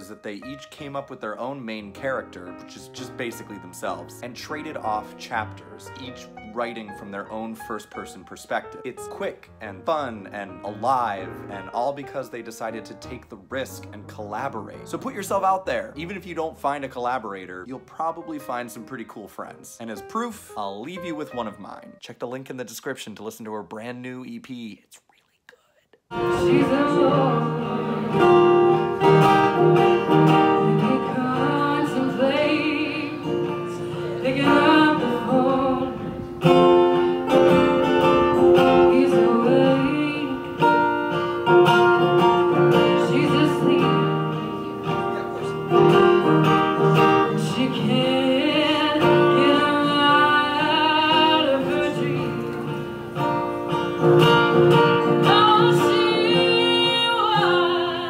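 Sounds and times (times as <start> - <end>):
acoustic guitar chords: 0.0 - 23.5, 26.1 - 58.0
woman singing: 26.1 - 29.1, 30.4 - 36.6, 38.4 - 40.7, 42.5 - 45.0, 47.0 - 52.4, 55.2 - 58.0.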